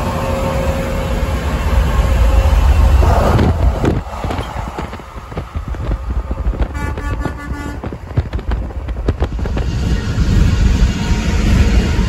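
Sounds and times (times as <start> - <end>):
road rumble: 0.0 - 12.0
wind: 0.0 - 12.0
truck air horn blast: 6.6 - 8.2.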